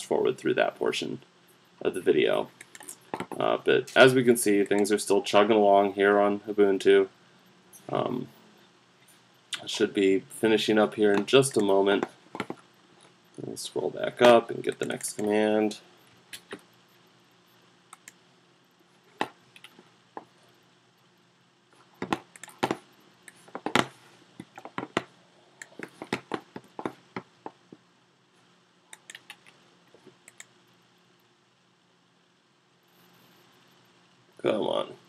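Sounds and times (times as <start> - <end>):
faint steady hum: 0.0 - 35.0
mouse clicks: 17.9 - 18.2, 28.9 - 29.6, 30.2 - 30.5.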